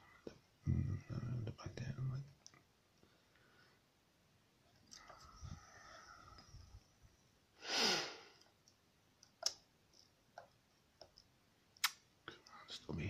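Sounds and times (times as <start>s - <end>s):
person sighing: 7.6s - 8.4s.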